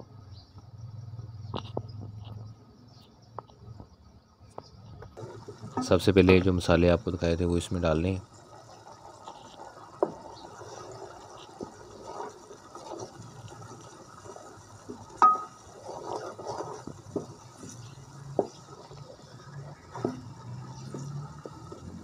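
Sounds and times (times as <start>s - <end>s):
spoon stirring thick sauce: 9.3s - 22.0s
spoon knocking against metal pot: 15.2s - 15.6s.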